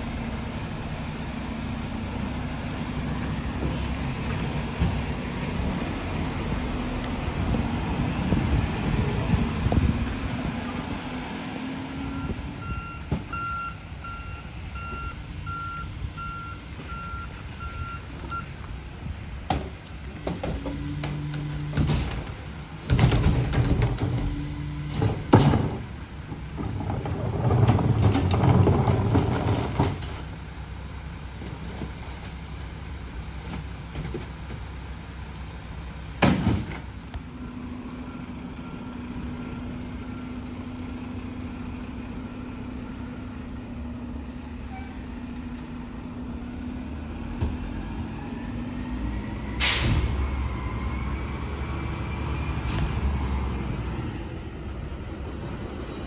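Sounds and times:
heavy rumbling: 0.0s - 13.3s
truck low hum: 0.0s - 56.0s
garbage truck bangs: 21.7s - 24.3s, 24.9s - 25.9s, 36.2s - 36.9s.

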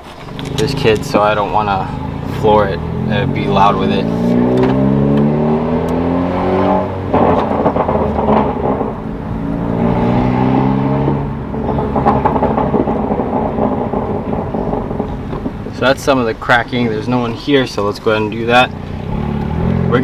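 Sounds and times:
car engine accelerating: 0.0s - 20.0s
exhaust crackles and pops: 0.0s - 20.0s.

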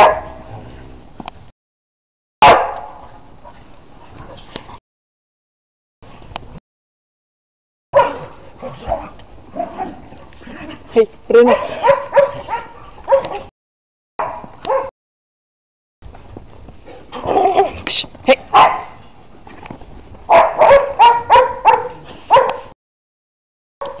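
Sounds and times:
dogs barking: 0.0s - 0.5s, 2.4s - 3.6s, 8.0s - 10.4s, 11.3s - 13.5s, 14.2s - 14.9s, 18.5s - 19.0s, 20.3s - 22.8s.

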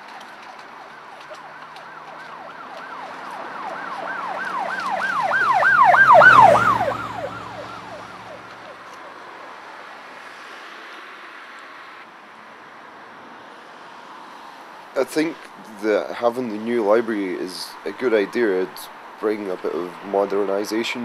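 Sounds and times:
vehicle rumble: 0.0s - 21.0s
emergency siren yelping: 0.2s - 9.8s.

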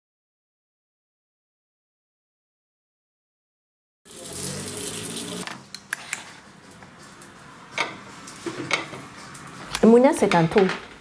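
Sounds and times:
kitchen noise: 4.1s - 11.0s.

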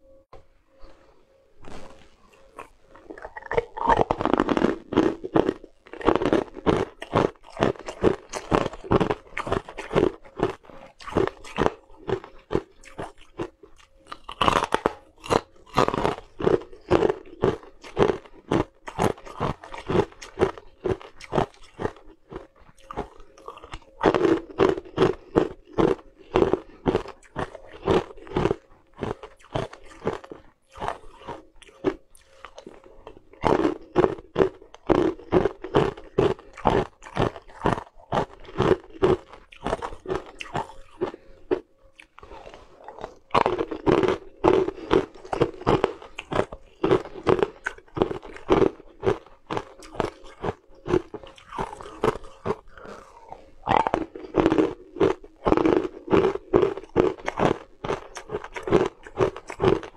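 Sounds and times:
crunching ice chunks: 42.3s - 59.9s.

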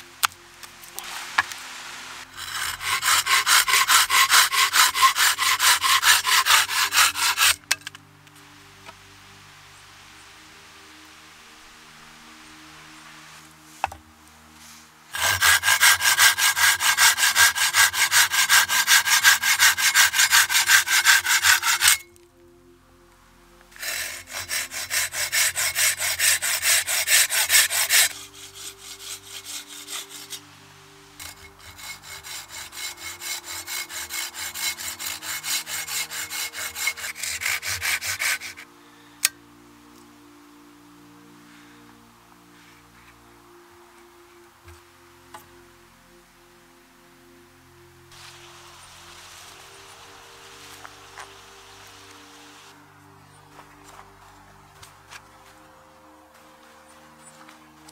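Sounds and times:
hand saw cutting stick: 2.2s - 8.0s, 15.1s - 22.1s, 23.8s - 30.5s, 31.2s - 39.4s.

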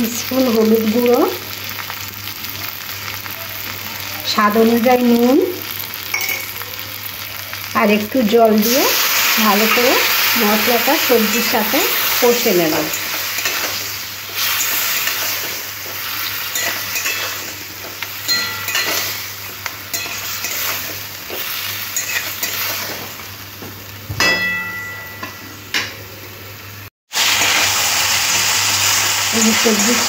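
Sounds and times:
vegetables sizzling in a pan: 0.0s - 30.0s
spatula clinking on a pan: 6.1s - 6.6s, 16.5s - 19.3s, 19.9s - 20.8s, 24.2s - 25.9s.

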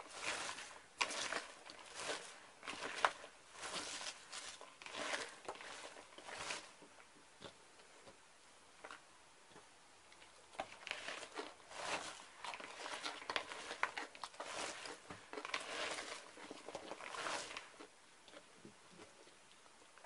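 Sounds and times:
cabbage crackling and rustling by hand: 0.0s - 7.0s, 10.5s - 18.4s.

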